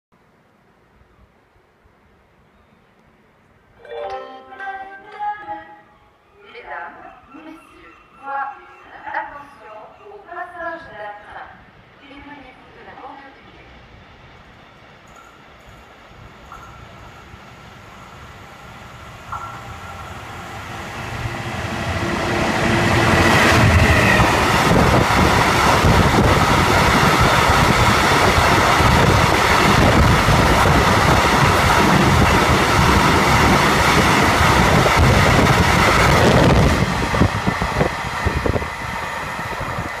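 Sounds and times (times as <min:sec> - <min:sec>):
diesel locomotive: 0:06.7 - 0:40.0
wheels clattering on rail: 0:15.0 - 0:18.2, 0:19.2 - 0:20.4.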